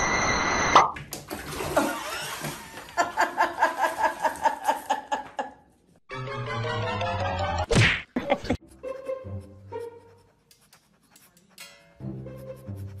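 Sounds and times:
water rushing into bathtub: 0.7s - 4.5s
person laughing: 3.0s - 5.6s, 8.2s - 8.6s.

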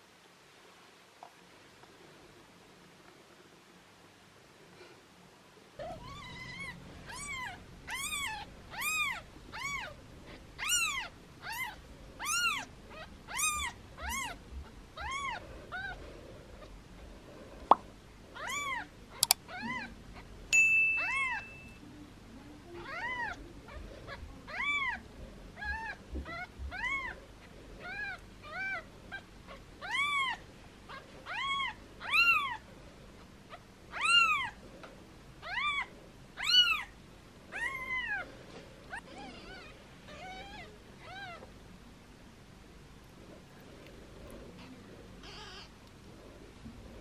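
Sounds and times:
kittens meowing: 5.8s - 10.0s, 10.6s - 14.4s, 15.0s - 16.0s, 25.6s - 27.2s, 29.5s - 32.6s, 44.6s - 45.7s.

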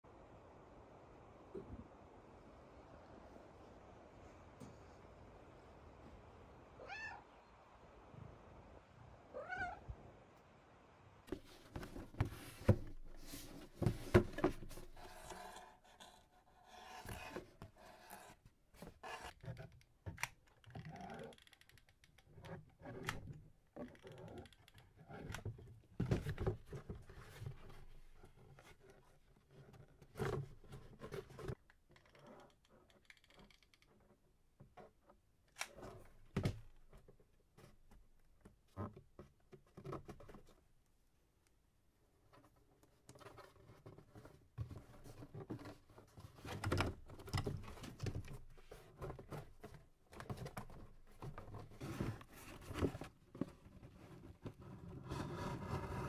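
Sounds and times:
cardboard taps and scrapes: 11.3s - 15.4s.

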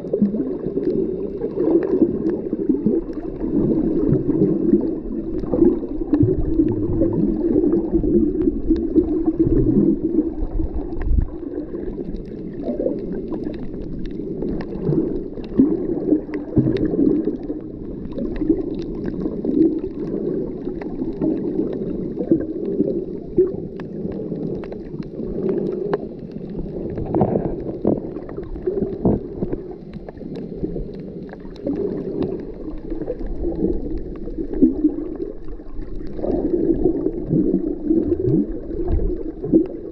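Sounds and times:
underwater sloshing and gurgling: 0.0s - 39.9s
faint clicks: 18.1s - 37.2s.

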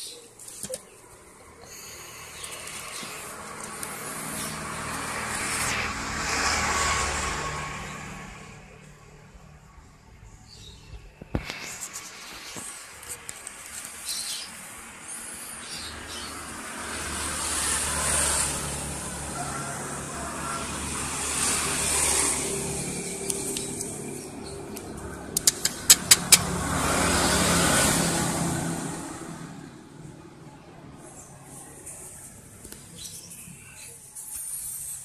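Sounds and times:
passing road traffic: 0.0s - 35.0s
sharp clicks: 24.7s - 26.6s.

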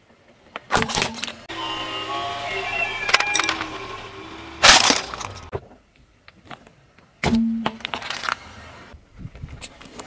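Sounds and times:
brief low hum: 1.5s - 5.5s.

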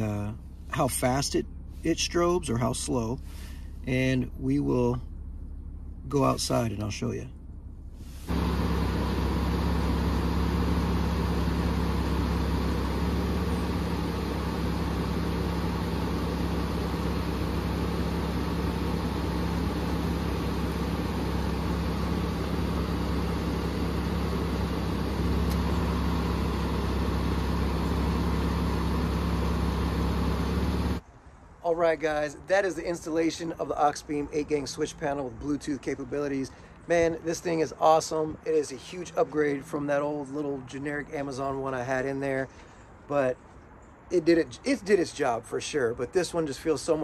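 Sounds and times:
car engine idling: 0.0s - 31.0s.

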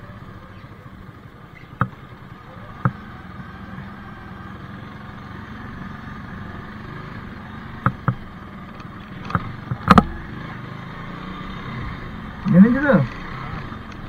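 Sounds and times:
motorcycle running at low speed: 0.0s - 14.0s
sharp knocks: 7.8s - 8.2s, 9.2s - 10.2s.

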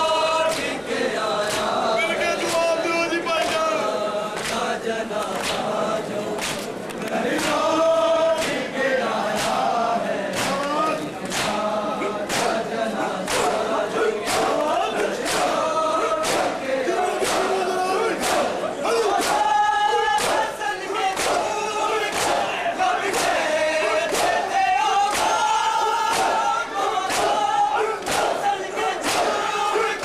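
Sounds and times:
crowd chanting in chorus: 0.0s - 30.0s
chest beating slaps: 10.3s - 11.6s, 12.2s - 12.6s, 16.2s - 17.6s, 18.2s - 22.5s, 23.1s - 28.4s, 29.0s - 29.4s.

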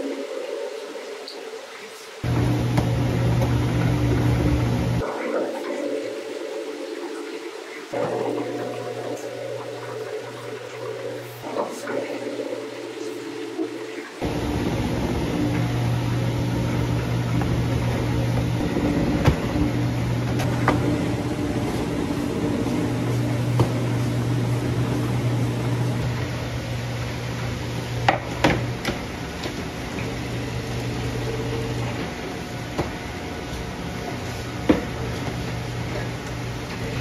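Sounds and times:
low machine hum: 2.2s - 5.2s, 8.0s - 37.0s.

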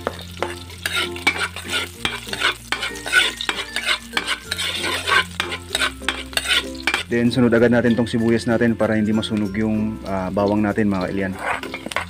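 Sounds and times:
garlic sizzling in hot oil: 0.0s - 12.0s
metal spatula scraping wok: 0.1s - 7.2s, 11.0s - 12.0s.

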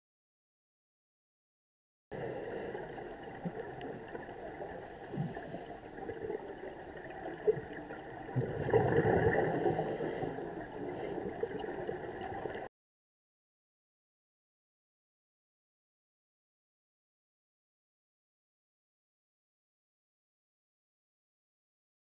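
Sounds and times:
muffled underwater noise: 2.2s - 12.7s
water gurgling surge: 2.9s - 12.7s.

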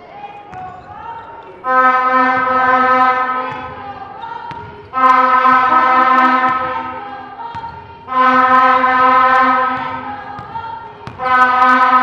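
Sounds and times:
horn blasts: 1.6s - 3.8s, 4.8s - 7.1s, 8.0s - 10.2s, 11.1s - 12.0s
basketball bouncing on hardwood: 4.4s - 4.9s, 9.7s - 11.2s.

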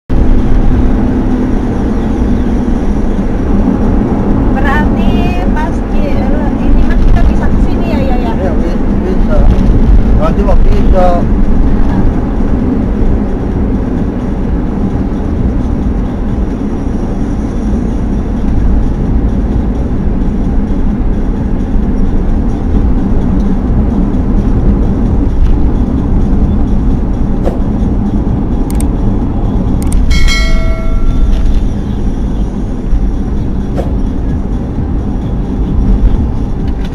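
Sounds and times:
car road and tyre noise: 0.1s - 36.9s
sharp clicks: 29.8s - 30.1s
short bell-like chime: 30.1s - 31.3s.

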